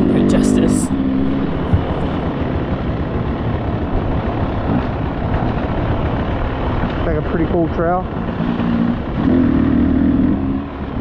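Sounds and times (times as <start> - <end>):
dirt bike engine running: 0.0 - 11.0.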